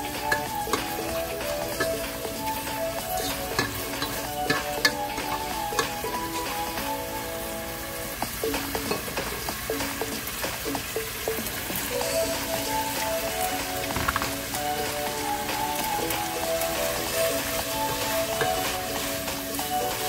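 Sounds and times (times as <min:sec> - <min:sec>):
background music: 0:00.0 - 0:20.0
vegetables sizzling in sauce: 0:00.0 - 0:20.0.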